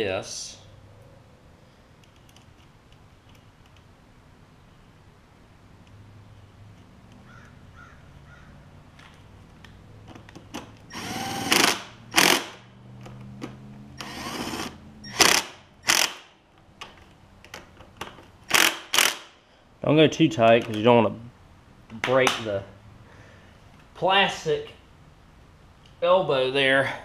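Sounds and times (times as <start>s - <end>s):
cordless driver spinning: 10.9s - 12.6s, 14.0s - 16.2s, 18.5s - 19.2s.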